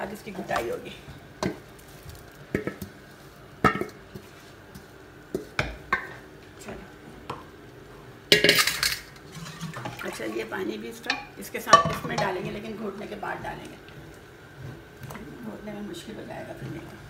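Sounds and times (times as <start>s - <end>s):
cookware clattering: 8.3s - 10.4s, 11.0s - 12.6s.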